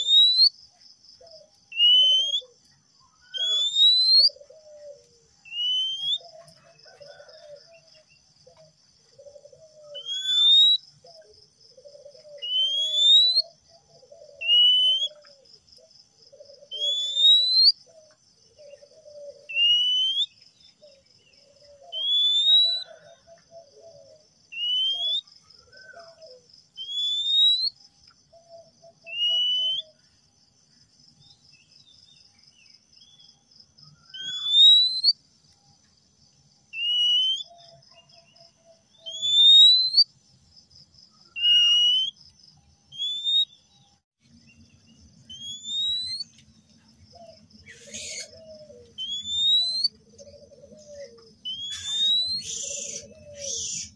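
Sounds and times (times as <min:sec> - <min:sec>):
bird singing rising whistles: 0:00.0 - 0:00.5, 0:01.7 - 0:02.4, 0:03.2 - 0:04.4, 0:05.4 - 0:06.3, 0:09.8 - 0:10.8, 0:12.4 - 0:13.6, 0:14.4 - 0:15.3, 0:16.7 - 0:17.8, 0:19.1 - 0:20.4, 0:21.9 - 0:23.0, 0:24.5 - 0:27.8, 0:29.0 - 0:30.0, 0:34.0 - 0:35.2, 0:36.7 - 0:37.7, 0:38.9 - 0:40.1, 0:41.2 - 0:42.2, 0:42.9 - 0:43.7, 0:45.3 - 0:46.3, 0:47.7 - 0:50.0, 0:50.8 - 0:53.9.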